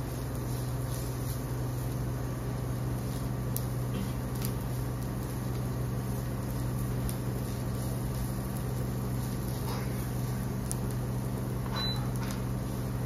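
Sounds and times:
induction cooktop humming: 0.0 - 13.0.

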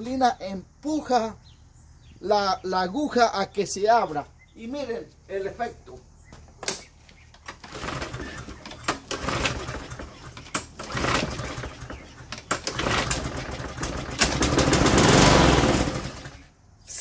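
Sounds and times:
push mower engine starting: 6.7 - 16.6.

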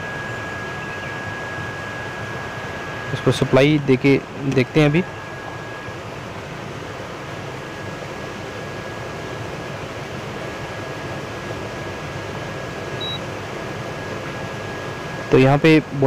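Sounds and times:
fan-like background noise: 0.0 - 16.0
thin steady whine: 0.0 - 16.0
short high beep: 13.0 - 13.2.

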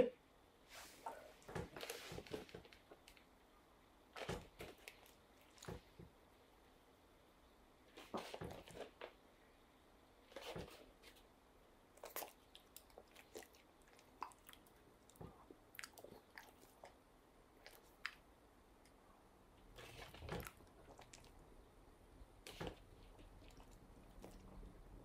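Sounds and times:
soft rustles: 0.7 - 3.2.

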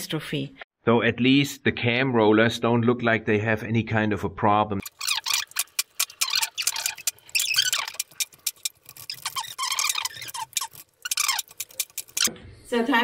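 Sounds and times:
sped-up squeaky voices: 4.8 - 12.3.

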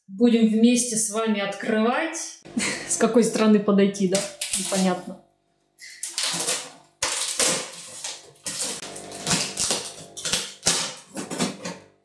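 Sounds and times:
packing tape ripping: 4.2 - 5.0, 5.8 - 11.8
knife slitting tape: 5.8 - 11.6.

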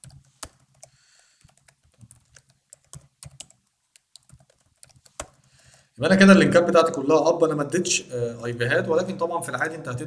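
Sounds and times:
typing on computer keyboard: 0.0 - 5.8.

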